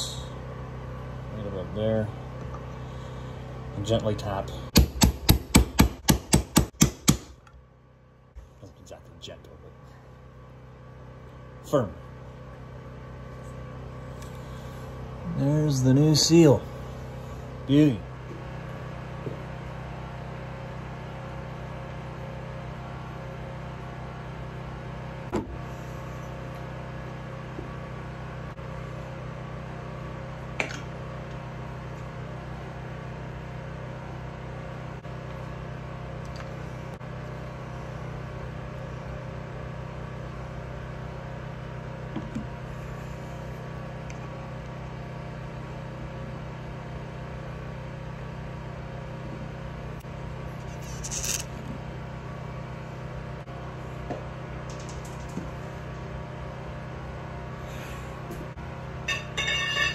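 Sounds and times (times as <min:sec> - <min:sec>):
steady low hum: 0:00.0 - 0:59.9
metal parts tapping: 0:50.7 - 0:51.5, 0:54.7 - 0:55.4.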